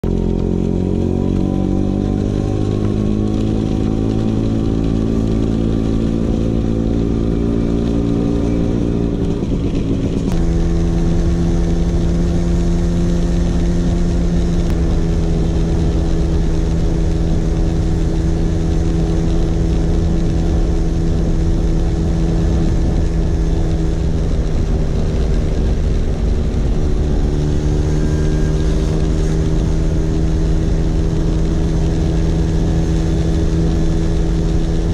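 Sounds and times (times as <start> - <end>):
scooter engine running: 0.0 - 34.9.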